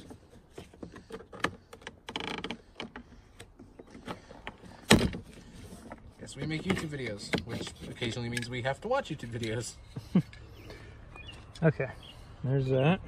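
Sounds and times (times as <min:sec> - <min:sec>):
plastic creaking: 0:00.0 - 0:08.6.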